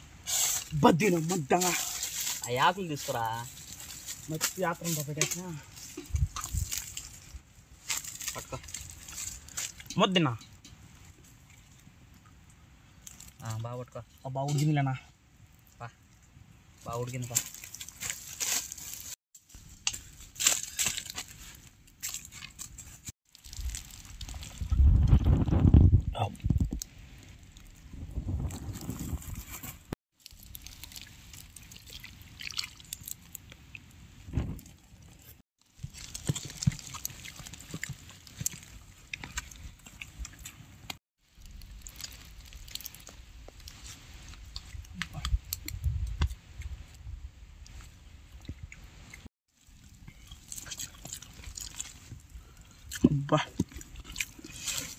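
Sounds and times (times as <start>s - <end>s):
dry leaves crunching: 0.6s - 9.8s, 17.0s - 24.7s, 28.7s - 33.3s, 35.6s - 39.8s, 41.2s - 44.6s
chewing: 30.2s - 33.6s, 34.6s - 43.8s, 48.6s - 54.9s.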